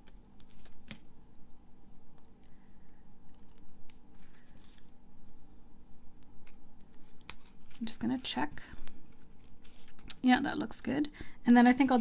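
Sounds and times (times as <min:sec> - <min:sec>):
paper rustling: 0:00.0 - 0:01.0, 0:03.3 - 0:05.0, 0:06.4 - 0:10.1
light clicks of paper pieces: 0:03.3 - 0:04.9.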